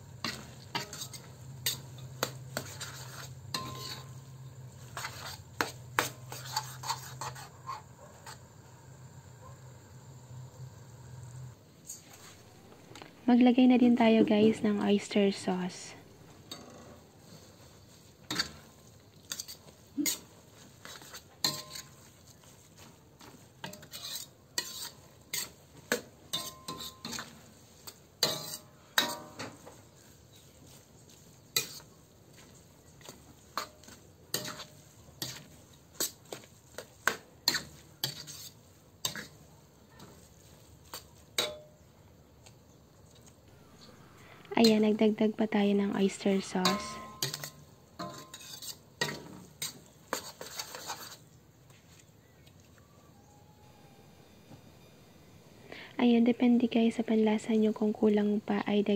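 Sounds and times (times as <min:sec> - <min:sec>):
spatula scraping metal wok: 0:00.0 - 0:08.6, 0:11.2 - 0:13.0, 0:14.2 - 0:41.8, 0:43.6 - 0:51.4
faint sizzle: 0:00.0 - 0:58.9.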